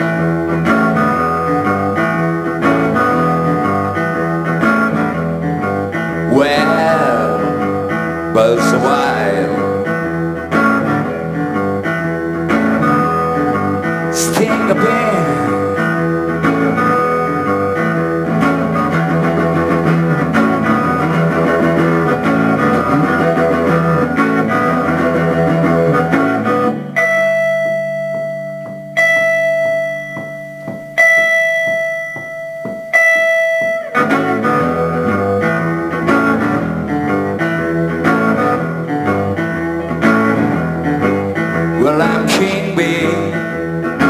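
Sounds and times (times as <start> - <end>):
electric guitar blues riff: 0.0 - 44.0
ringing single guitar notes: 3.1 - 11.8, 13.0 - 18.1, 26.6 - 37.3.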